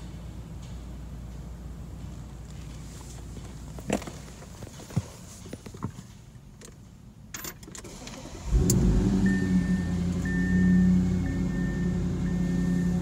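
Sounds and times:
car engine starting and idling: 6.6 - 13.0
dashboard warning chime beeping: 9.2 - 13.0.

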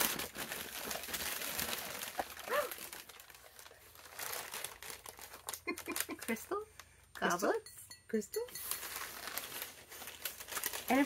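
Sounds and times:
packing material crinkling: 0.0 - 6.4, 8.6 - 11.0.

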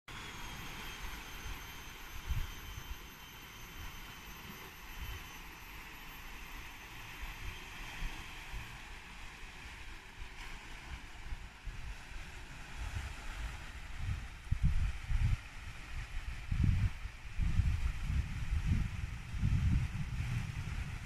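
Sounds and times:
faint high steady tone: 0.1 - 10.0
wind gusts on microphone: 10.2 - 21.0
steady outdoor rushing noise: 12.8 - 21.0.

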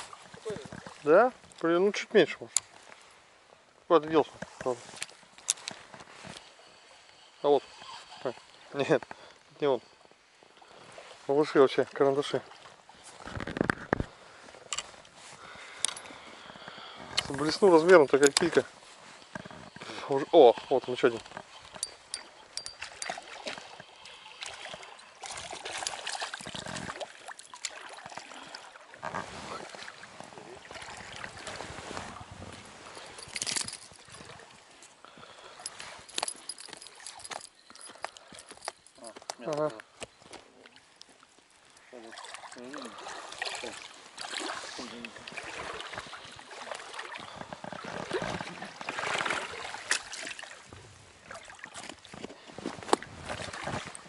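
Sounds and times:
river water trickling and splashing: 0.0 - 54.0.

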